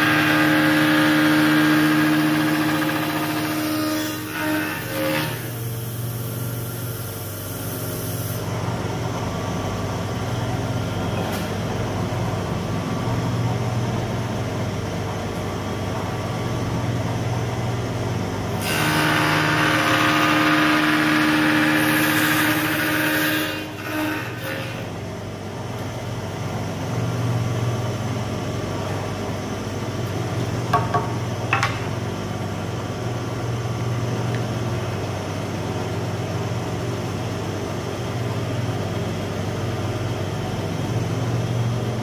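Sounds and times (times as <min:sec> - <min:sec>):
cutter cutting wood: 0:00.0 - 0:04.6, 0:18.6 - 0:24.8
wood shaper humming: 0:00.0 - 0:05.6, 0:18.6 - 0:25.0.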